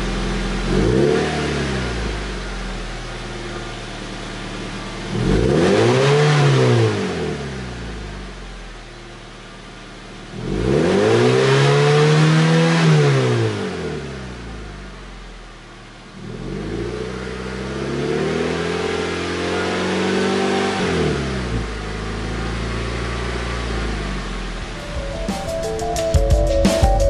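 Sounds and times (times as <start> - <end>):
car engine idling and revving: 0.0 - 27.0.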